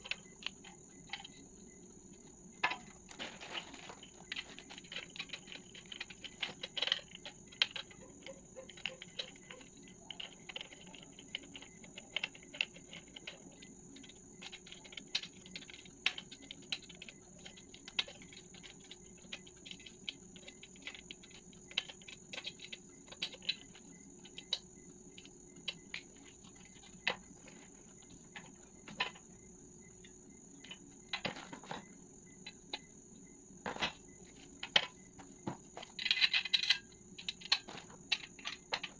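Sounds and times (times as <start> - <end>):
steady high-pitched whine: 0.0 - 38.9
small metal clicks and taps: 3.8 - 27.6, 34.6 - 38.9.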